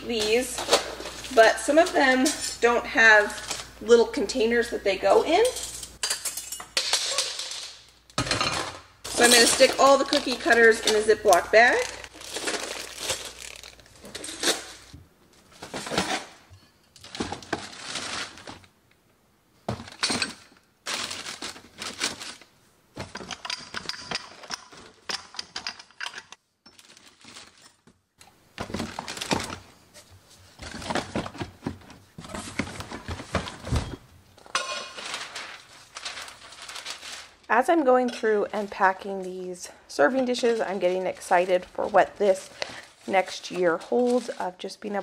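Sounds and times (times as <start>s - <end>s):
plastic bag rustling and crinkling: 9.0s - 18.7s, 20.8s - 23.2s, 26.7s - 27.9s, 34.4s - 39.5s, 40.1s - 44.6s.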